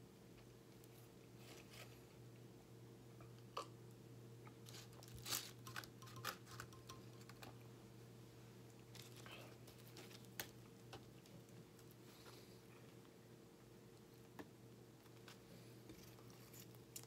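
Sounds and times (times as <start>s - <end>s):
faint steady hum: 0.0s - 17.0s
sandwich wrapper rustling: 4.7s - 6.7s, 8.9s - 10.7s.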